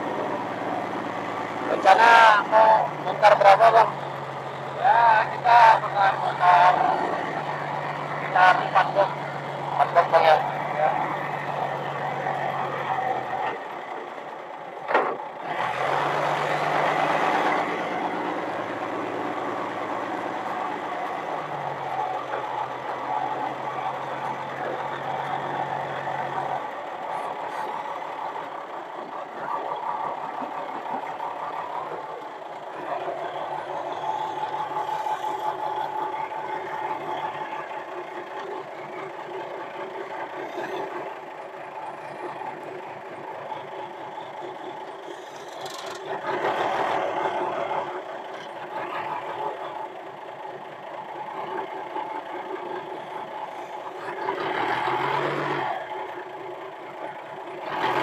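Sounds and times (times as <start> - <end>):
forklift engine revving: 0.0 - 58.0.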